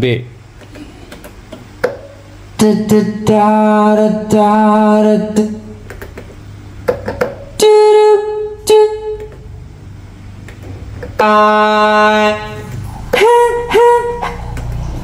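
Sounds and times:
keyboard notes: 0:11.0 - 0:15.0.

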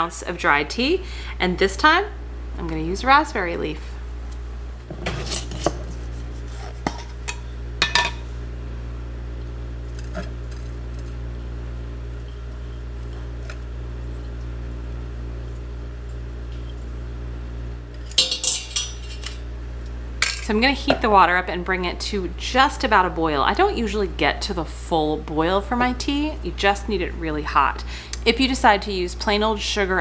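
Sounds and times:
steady low hum: 0:00.0 - 0:30.0
metallic clatter: 0:18.0 - 0:19.4.

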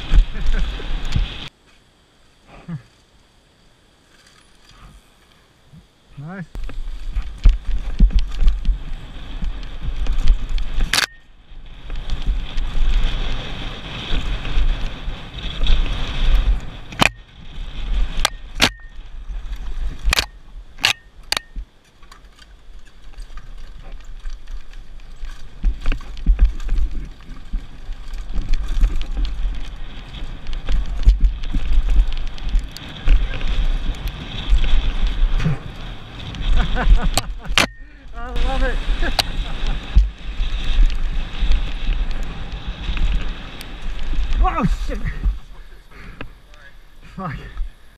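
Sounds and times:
bike rattling: 0:00.0 - 0:01.5, 0:03.9 - 0:05.8, 0:06.6 - 0:47.9
wind buffeting microphone: 0:00.0 - 0:01.5, 0:06.5 - 0:21.7, 0:22.6 - 0:47.9.

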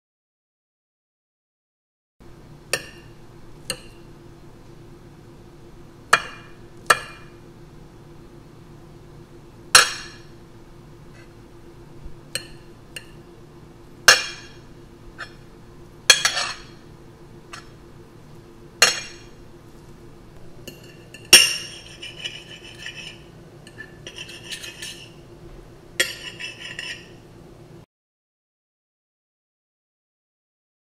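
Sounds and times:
cutlery clinking on plate: 0:16.1 - 0:16.8, 0:20.7 - 0:25.2, 0:26.0 - 0:27.2.

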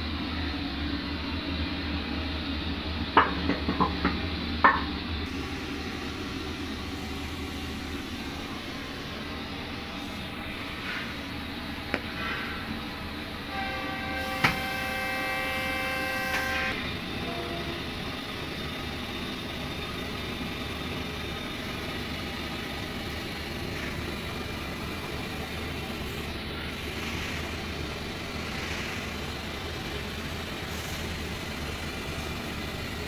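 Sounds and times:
horn steady tone: 0:13.4 - 0:18.7.

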